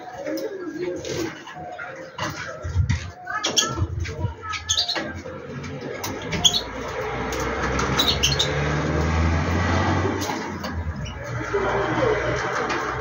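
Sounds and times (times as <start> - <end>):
vehicle engine passing: 5.5 - 13.0
bird chirps: 6.2 - 6.8.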